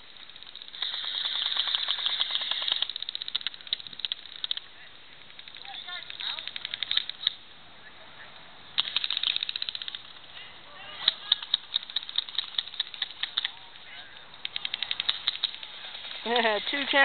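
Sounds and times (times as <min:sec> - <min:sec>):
airsoft guns firing bursts: 0:00.3 - 0:04.6, 0:08.8 - 0:10.2, 0:11.0 - 0:13.6, 0:14.4 - 0:16.2.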